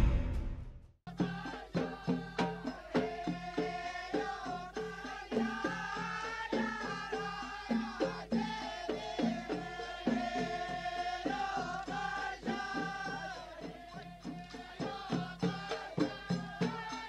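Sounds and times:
steady drum beat: 0.0s - 7.1s
folk song singing voice: 1.1s - 17.0s.

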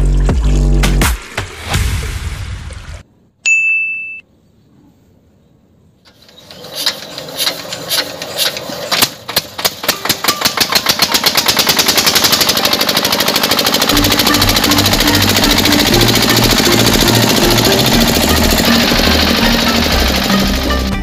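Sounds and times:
short ding: 3.4s - 4.3s
small engine starting up: 6.1s - 21.0s.

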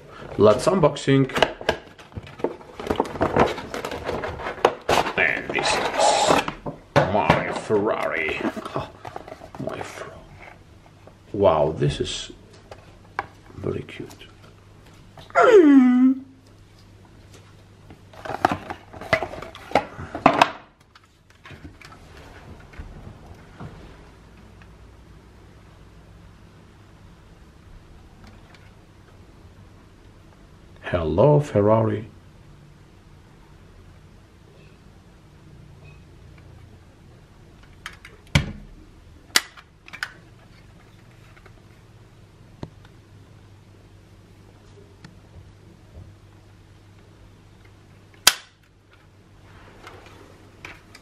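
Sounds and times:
toy car and cardboard box handling: 2.2s - 6.6s, 18.1s - 19.9s
model car handling clicks and knocks: 39.3s - 40.2s.

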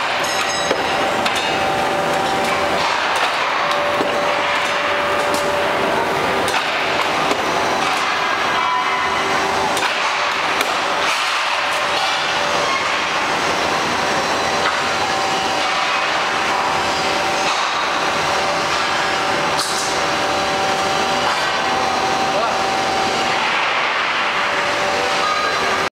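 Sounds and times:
sharp metallic knocks: 0.0s - 1.7s
hydraulic machine noise: 0.0s - 25.9s.

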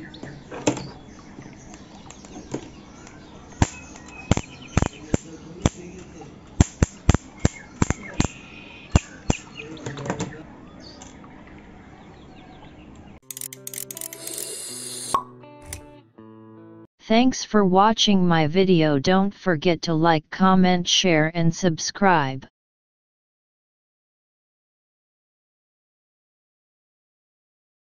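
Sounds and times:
electric arc snapping cracks: 4.3s - 5.0s.

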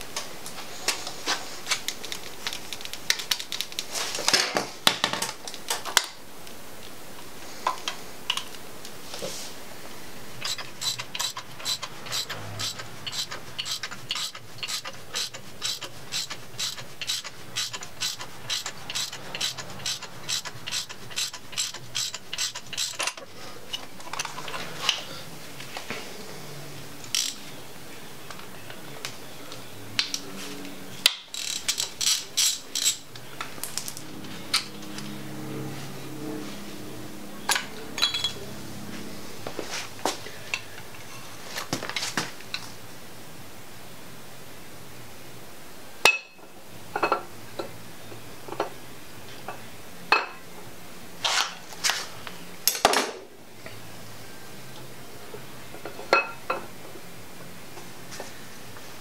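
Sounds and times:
socket ratchet clicking: 10.4s - 23.2s.

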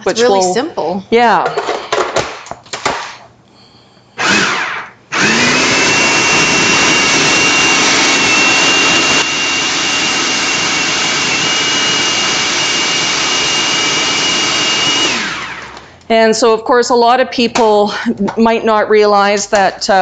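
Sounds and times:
food processor motor whine: 4.2s - 16.1s.

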